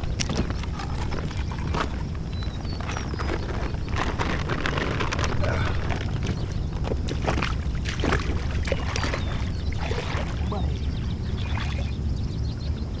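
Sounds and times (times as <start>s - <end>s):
plastic bag rustling: 0.0s - 7.2s
wind rumbling on microphone: 0.0s - 13.0s
splashes in shallow water: 5.8s - 11.9s.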